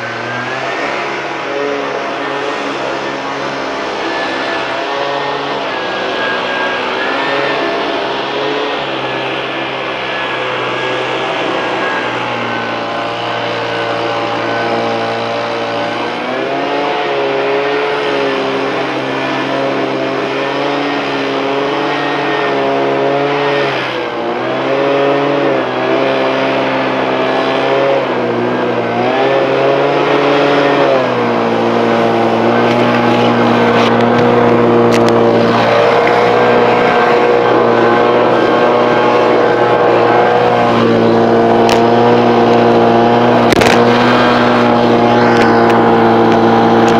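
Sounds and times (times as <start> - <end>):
leaf blower running: 0.0 - 46.9.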